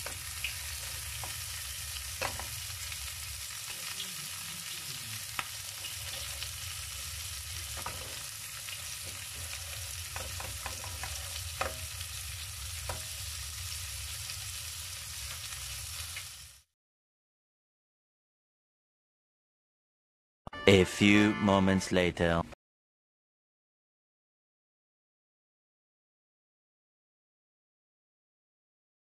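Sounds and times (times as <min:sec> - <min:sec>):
patties sizzling in frying pan: 0:00.0 - 0:16.7
spatula clicking against pan: 0:10.1 - 0:11.8.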